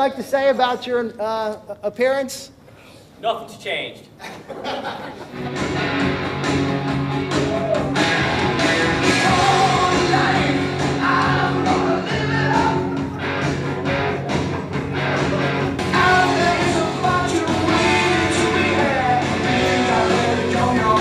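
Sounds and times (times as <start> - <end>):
rock music with singing: 5.4 - 21.0.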